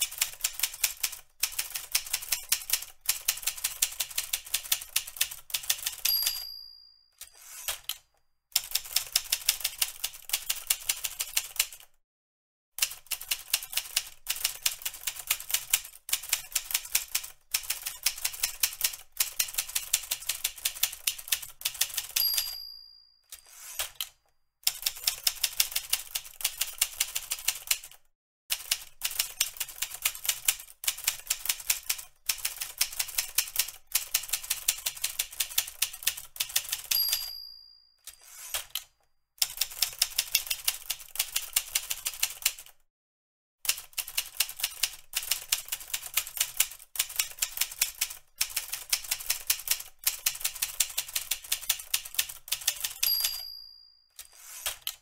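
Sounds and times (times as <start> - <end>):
typewriter keys clacking: 0.0 - 6.4, 12.8 - 22.6, 23.3 - 37.3, 38.1 - 42.7, 43.7 - 53.5, 54.2 - 55.0
typewriter bell ding: 5.8 - 7.8, 21.8 - 24.0, 36.6 - 38.8, 52.5 - 55.0.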